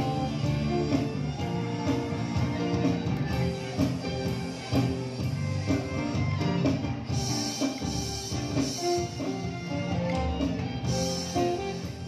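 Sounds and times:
bass: 0:00.0 - 0:12.0
drum kit beat: 0:00.0 - 0:12.0
violins playing melody: 0:00.0 - 0:12.0.

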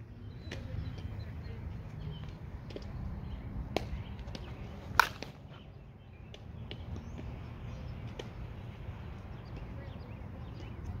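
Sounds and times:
bat cracking a softball: 0:03.7 - 0:05.6.

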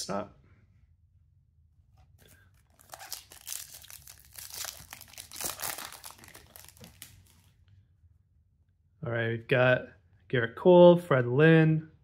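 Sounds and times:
foil wrapper tearing and crinkling: 0:02.6 - 0:07.5.

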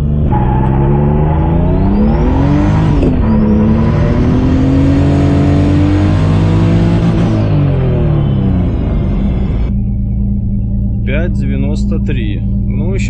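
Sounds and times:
car engine accelerating hard: 0:00.0 - 0:10.2
high turbo whine: 0:00.0 - 0:13.0.

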